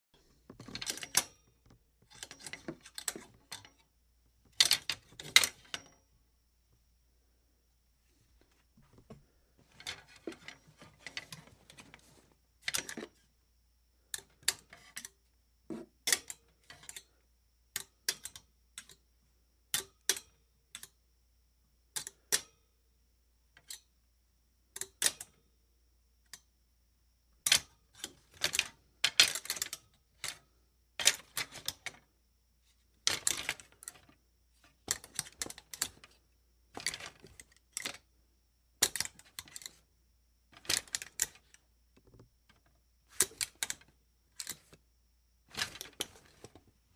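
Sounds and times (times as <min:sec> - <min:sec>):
hanger clattering against metal: 0:00.6 - 0:03.8, 0:04.5 - 0:06.0, 0:09.7 - 0:13.2, 0:27.5 - 0:30.4, 0:33.1 - 0:34.2, 0:34.9 - 0:36.2, 0:36.8 - 0:38.0, 0:40.6 - 0:41.6, 0:45.5 - 0:46.6.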